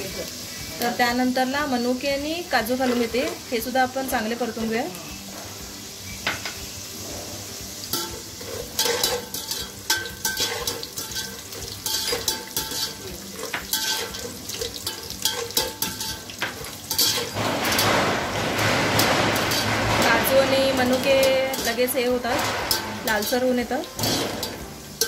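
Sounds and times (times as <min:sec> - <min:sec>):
nuts sizzling in hot oil: 0:00.0 - 0:25.0
metal spatula scraping pot: 0:06.3 - 0:25.0.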